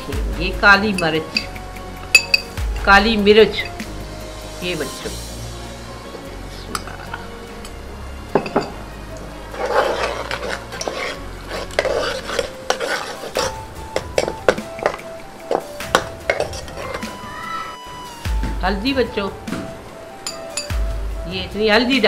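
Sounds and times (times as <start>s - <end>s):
spoon clinking against pot: 0.9s - 2.6s
spoon stirring onions in oil: 8.5s - 17.1s.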